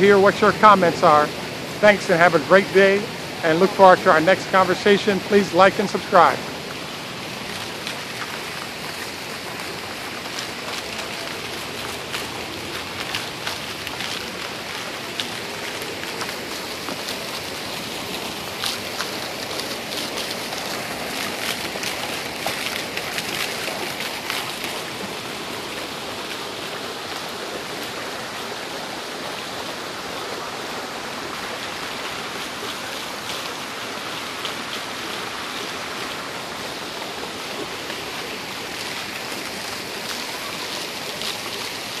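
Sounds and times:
fountain water splashing: 0.0 - 42.0
water pouring from spouts: 0.0 - 42.0.

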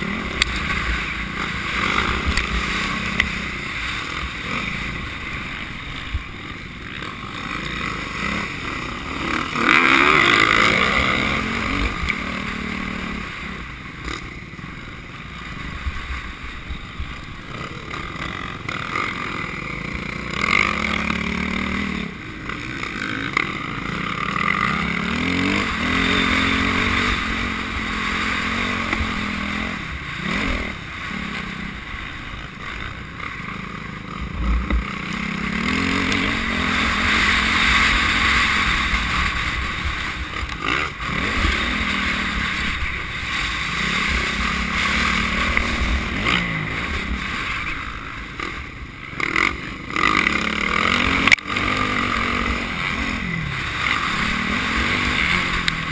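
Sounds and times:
motocross bike engine revving: 0.0 - 55.9.

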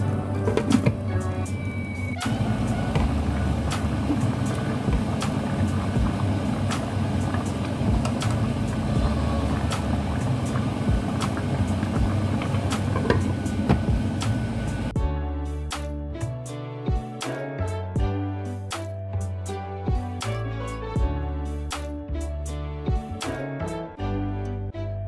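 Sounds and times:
pot boiling hard: 1.6 - 15.0.

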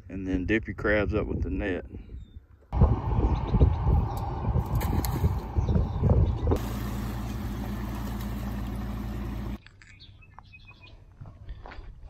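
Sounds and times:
gusty wind on microphone: 1.2 - 6.7
low engine-like drone: 2.8 - 9.6.

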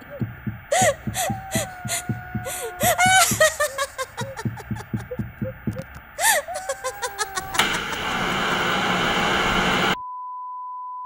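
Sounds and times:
sharp clicks: 4.4 - 6.2.

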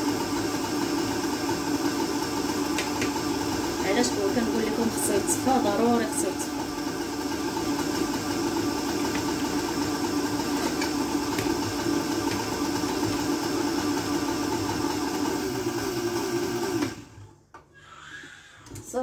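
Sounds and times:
blender motor running: 0.0 - 17.2.

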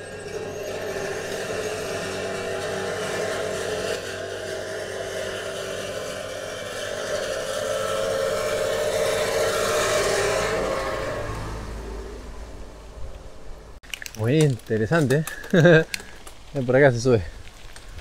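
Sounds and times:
tractor and flail mower running: 0.0 - 12.5.

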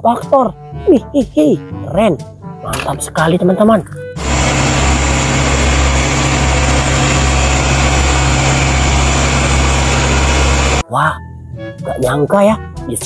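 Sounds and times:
compactor diesel engine running: 4.2 - 10.8.

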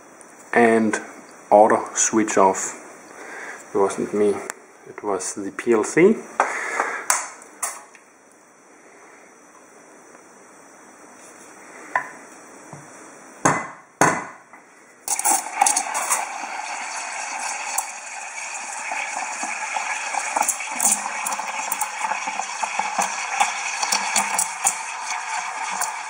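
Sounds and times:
steam wand hissing into milk: 15.1 - 26.0.

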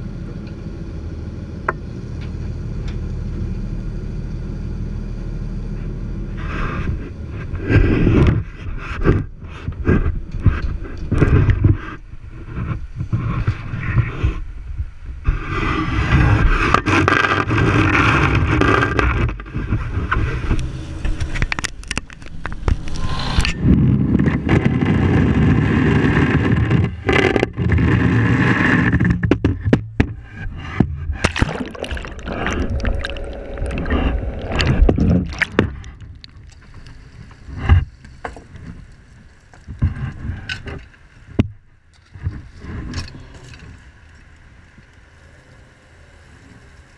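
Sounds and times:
gear knocking and scraping: 6.4 - 43.8
boat engine running: 23.6 - 38.0
water sounds: 30.1 - 41.4.

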